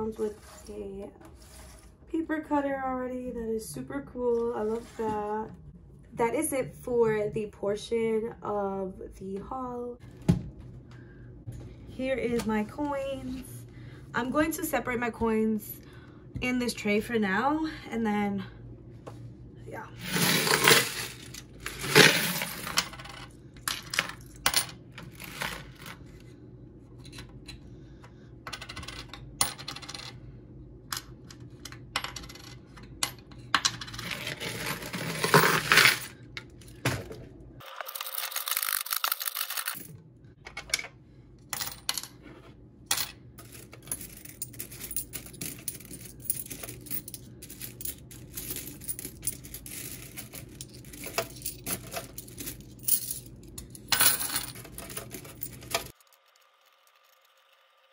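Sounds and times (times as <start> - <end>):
coins pouring out of plastic bottle: 20.0 - 23.0, 34.0 - 36.1, 37.6 - 39.8, 43.4 - 53.2
coins clinking into tray: 20.0 - 26.0, 28.5 - 30.1, 32.0 - 36.1, 37.6 - 39.9, 41.5 - 42.1, 42.9 - 57.4.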